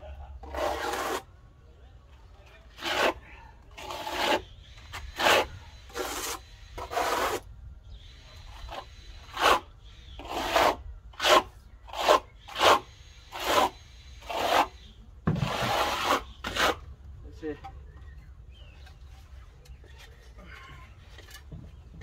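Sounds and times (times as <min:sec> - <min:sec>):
trowel scraping render on board: 0:00.4 - 0:01.3, 0:02.7 - 0:07.5, 0:08.5 - 0:16.9.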